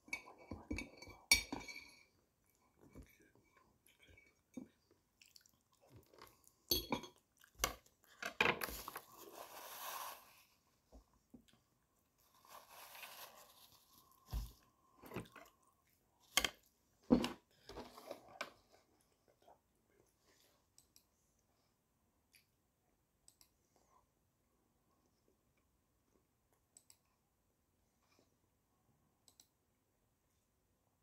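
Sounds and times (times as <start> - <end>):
person chewing: 3.8 - 9.2.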